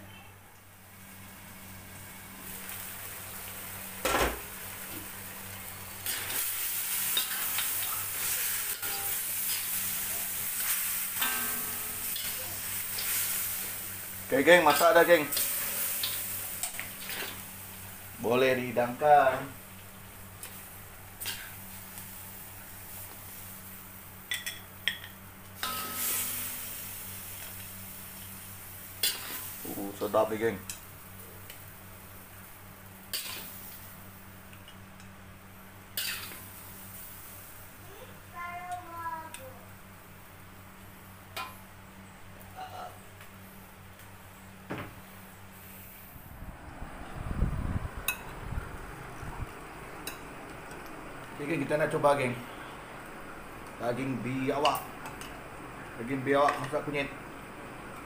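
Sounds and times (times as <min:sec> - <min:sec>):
curry sizzling in a wok: 0:00.7 - 0:42.1
utensils scraping a wok: 0:06.0 - 0:13.8, 0:14.6 - 0:17.5, 0:29.0 - 0:29.5, 0:33.1 - 0:33.8, 0:36.0 - 0:36.4
steady low hum: 0:39.6 - 0:58.0.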